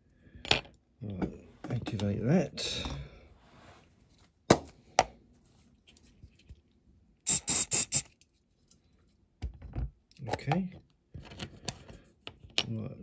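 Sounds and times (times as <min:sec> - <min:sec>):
spray bottle hissing puffs: 0:07.3 - 0:08.1.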